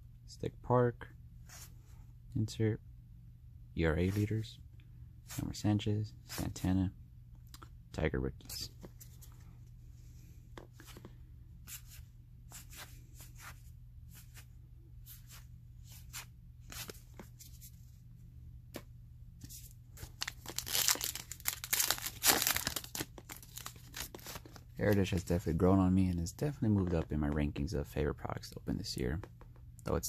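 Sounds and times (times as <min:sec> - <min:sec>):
wrapper crinkling and ripping: 0:20.0 - 0:24.5.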